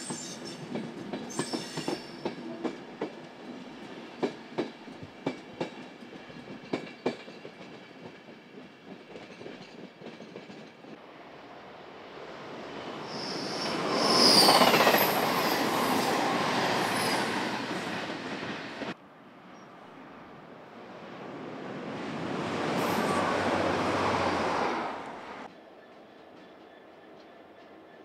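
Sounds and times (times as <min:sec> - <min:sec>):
train wheels clicking on rail joints: 0:00.0 - 0:11.0, 0:25.4 - 0:28.0
train rushing past: 0:00.0 - 0:19.0, 0:20.6 - 0:28.0.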